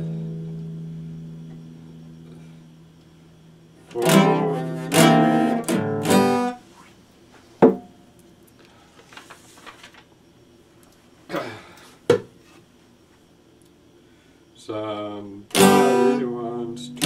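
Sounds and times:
acoustic guitar strummed chords: 0.0s - 2.8s, 3.8s - 6.6s, 15.5s - 17.0s.

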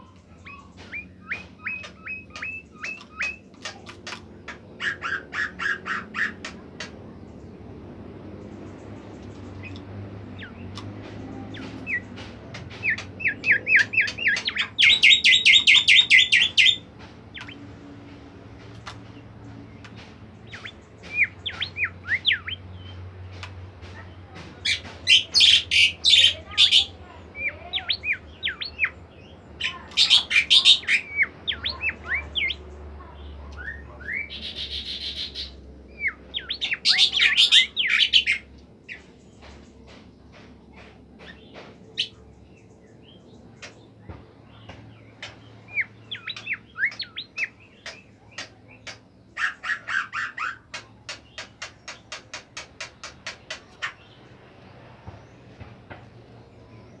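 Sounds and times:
bird singing whistled notes: 0.4s - 3.5s, 12.8s - 17.6s, 20.5s - 23.0s, 45.7s - 47.6s
bird rattling trills: 0.5s - 4.2s, 11.5s - 17.6s.

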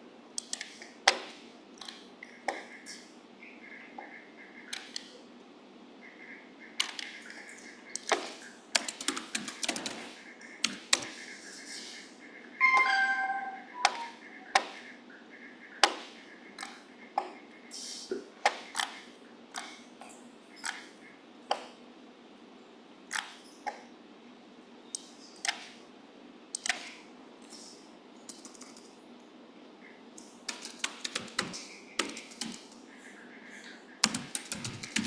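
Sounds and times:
mouse clicks: 0.4s - 1.2s, 4.7s - 5.2s, 13.8s - 14.8s
keyboard typing: 6.8s - 11.4s, 12.6s - 14.9s, 28.2s - 29.0s, 30.2s - 32.8s, 34.0s - 35.0s.

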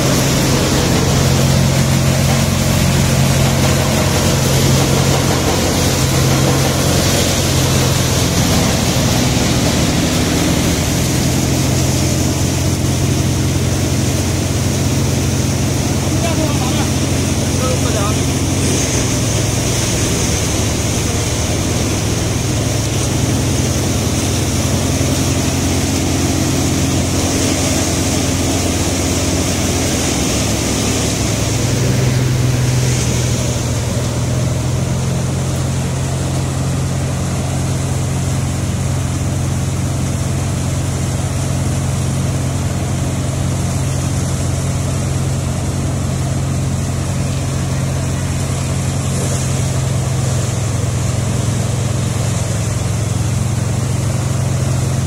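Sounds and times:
low mechanical hum: 0.0s - 55.0s
straw rushing through machine: 0.0s - 55.0s.

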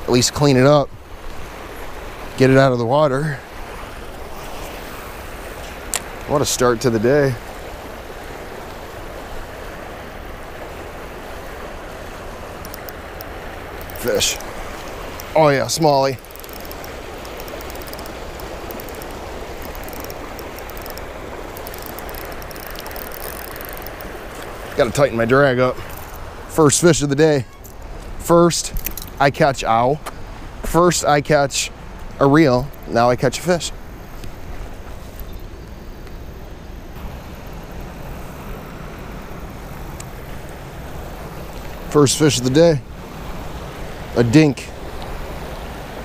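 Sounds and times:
river water rushing over rocks: 0.0s - 26.9s, 36.9s - 46.0s
river rushing over rapids: 36.9s - 46.0s.

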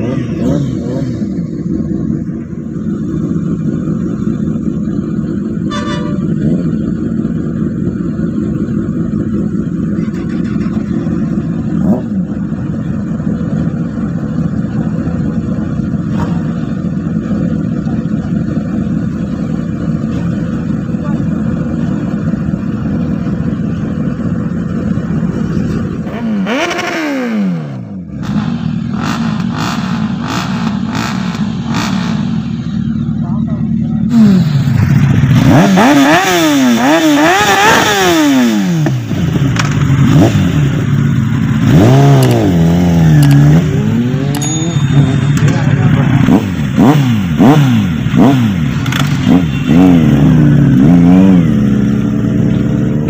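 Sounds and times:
motorcycle engine revving: 0.0s - 53.0s
motorcycle engines idling: 0.0s - 53.0s
horn toot: 5.6s - 6.6s.

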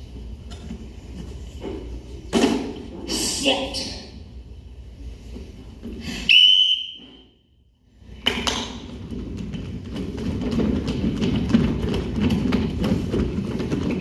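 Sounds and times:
whistle blast: 6.2s - 7.4s
children running on wooden stage: 8.2s - 14.0s.

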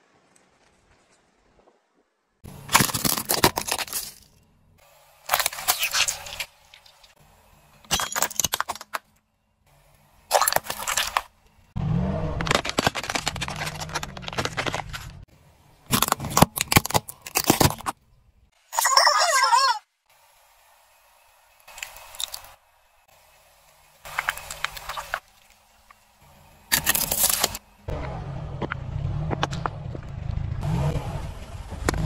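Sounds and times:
tyre crushing plastic objects: 2.5s - 4.4s, 5.3s - 6.5s, 7.8s - 9.1s, 10.3s - 11.3s, 12.2s - 18.0s, 26.7s - 27.6s
low rumble: 27.9s - 32.0s.

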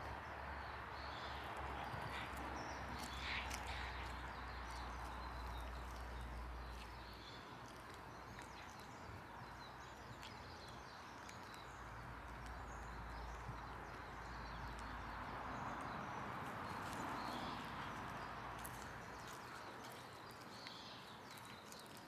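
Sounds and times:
cats chewing grass: 0.0s - 22.0s.

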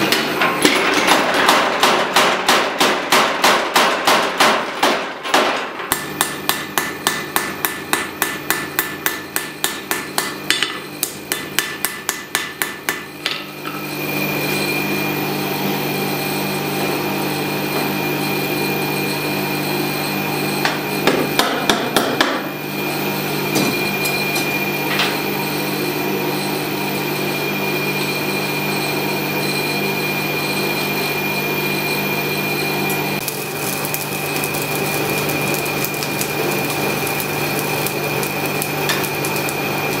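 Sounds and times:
forge running with hum: 0.0s - 40.0s
power hammer pounding metal: 0.9s - 13.1s.

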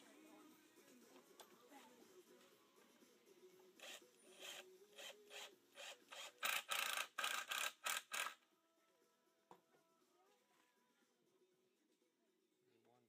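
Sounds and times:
cordless drill driving screw into wood: 3.8s - 8.4s.

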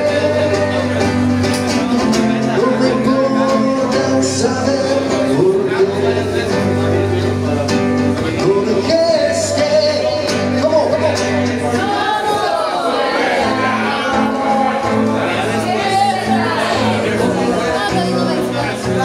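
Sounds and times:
man singing: 0.0s - 12.0s
classical guitar: 0.0s - 19.0s.

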